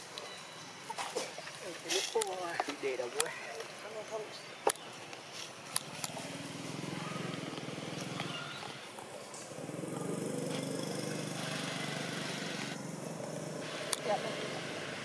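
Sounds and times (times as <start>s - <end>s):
small motor engine running: 9.4s - 15.0s.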